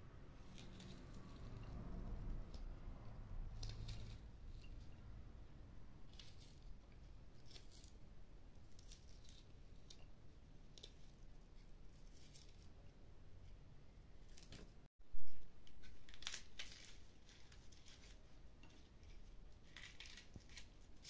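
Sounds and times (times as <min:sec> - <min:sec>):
low rumble: 0:00.0 - 0:07.2.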